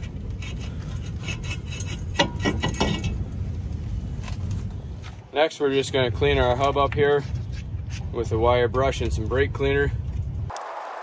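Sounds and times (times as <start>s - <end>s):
brake rotor scraping over studs: 0.0s - 9.6s.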